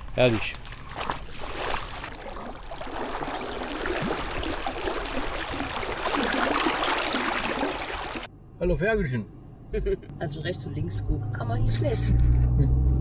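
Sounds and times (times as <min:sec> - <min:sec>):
person wading through water: 0:00.0 - 0:08.3
river water rushing: 0:01.4 - 0:08.3.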